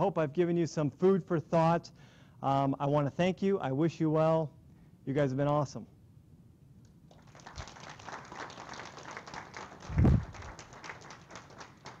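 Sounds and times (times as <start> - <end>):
audience clapping: 7.1 - 12.0.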